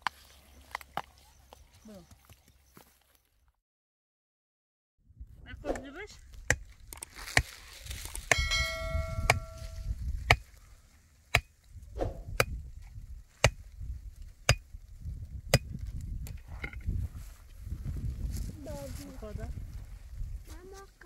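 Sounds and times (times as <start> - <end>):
pickaxe knocking a wooden stake: 8.2 - 10.5, 11.3 - 11.5, 13.4 - 13.6
brief metallic ring: 8.3 - 9.9.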